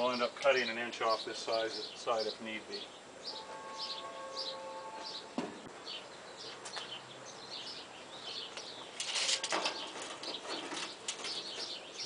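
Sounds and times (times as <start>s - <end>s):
small birds chirping: 0.0s - 12.0s
tape measure scraping rattle: 9.0s - 11.5s.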